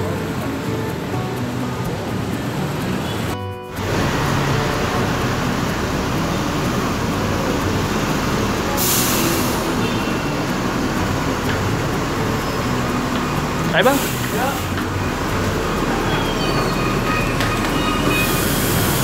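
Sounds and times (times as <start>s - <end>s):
bus pulling in: 0.0s - 19.0s
street traffic: 0.0s - 19.0s
air brake hiss: 8.8s - 10.0s, 18.1s - 19.0s.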